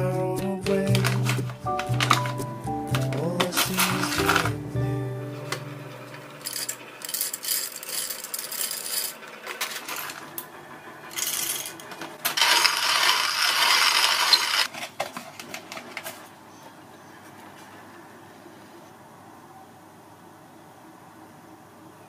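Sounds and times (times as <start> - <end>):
coffee beans clattering into grinder: 3.2 - 4.6, 6.2 - 10.4, 11.1 - 15.0.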